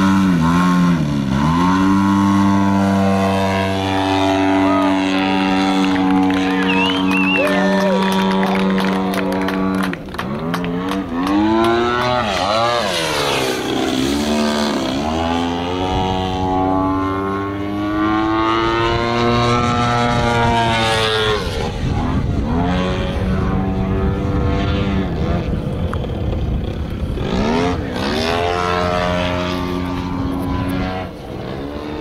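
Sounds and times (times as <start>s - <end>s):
model plane engine and propeller: 0.0s - 32.0s.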